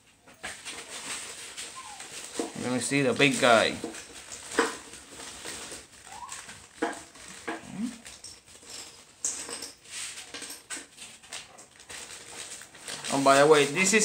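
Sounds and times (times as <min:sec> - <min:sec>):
plastic bags crinkling: 0:00.4 - 0:14.0
dog whimpering: 0:01.7 - 0:02.3, 0:06.0 - 0:06.5, 0:07.4 - 0:08.0.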